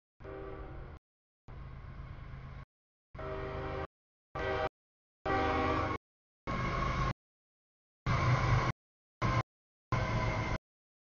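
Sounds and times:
train horn: 0:00.2 - 0:01.0, 0:03.2 - 0:06.0.

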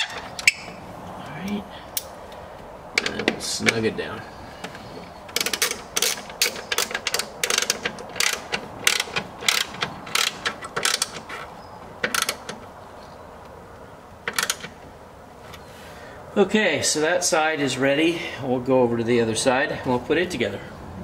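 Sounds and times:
ratchet wrench clicking: 0:05.3 - 0:11.3, 0:12.1 - 0:12.5.

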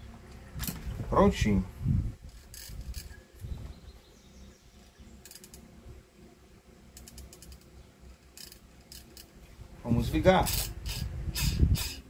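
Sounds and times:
small parts clicking and rattling: 0:02.2 - 0:03.2, 0:05.2 - 0:05.7, 0:06.9 - 0:09.4, 0:10.4 - 0:12.0.

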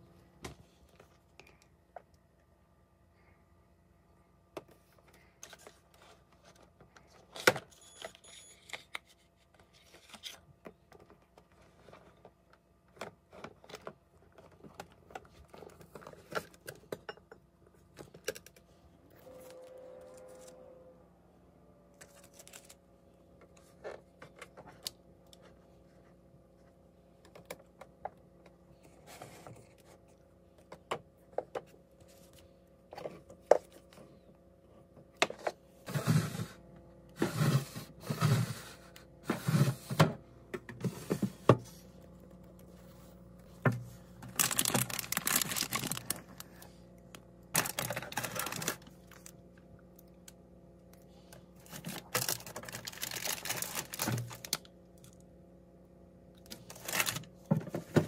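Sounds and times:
refrigerator low hum: 0:00.0 - 0:58.0
plastic packaging rustling: 0:44.1 - 0:46.7, 0:47.6 - 0:49.4, 0:51.6 - 0:54.7, 0:56.5 - 0:58.0.

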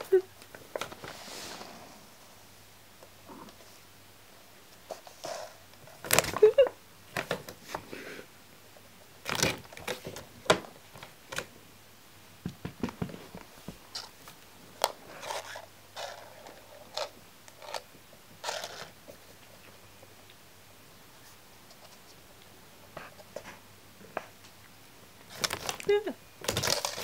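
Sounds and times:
paper bag rustling and crinkling: 0:25.3 - 0:27.0.

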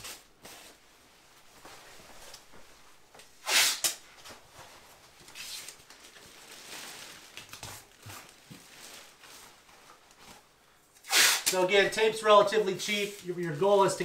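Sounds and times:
plastic bag rustling and crinkling: 0:04.2 - 0:10.6.

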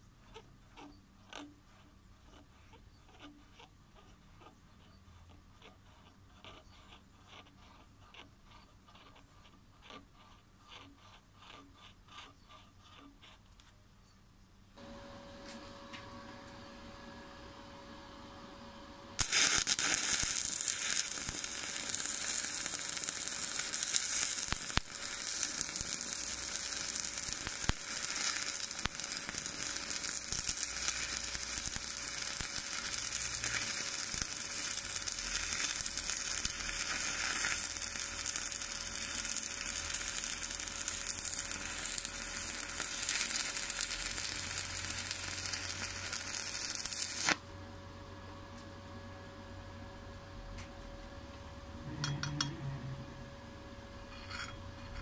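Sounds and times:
welding arc crackling: 0:19.2 - 0:47.4.

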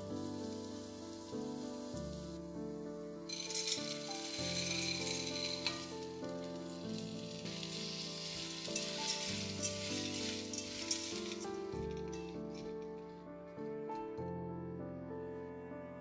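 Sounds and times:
peas sizzling in hot pot: 0:00.0 - 0:13.2
soft background music: 0:00.0 - 0:16.0
spatula stirring: 0:03.3 - 0:12.8.

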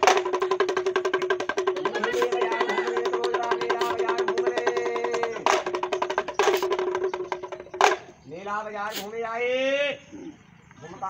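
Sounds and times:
hand drum rattling drumroll: 0:00.0 - 0:08.1.

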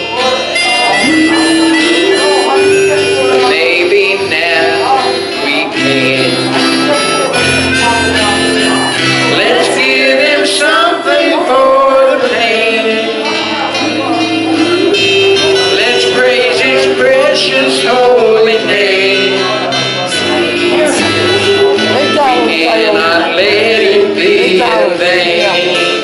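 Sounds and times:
bass notes: 0:00.0 - 0:26.0
keyboard chords: 0:00.0 - 0:26.0
voices singing a hymn: 0:07.9 - 0:26.0.

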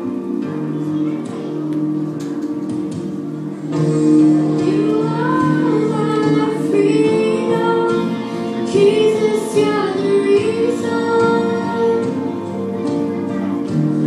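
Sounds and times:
instrumental accompaniment: 0:00.0 - 0:14.0
girl singing: 0:04.4 - 0:13.5.

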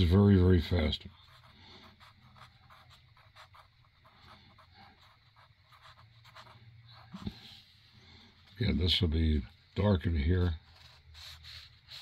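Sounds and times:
pencil scratching on paper: 0:00.0 - 0:07.6, 0:10.6 - 0:12.0.

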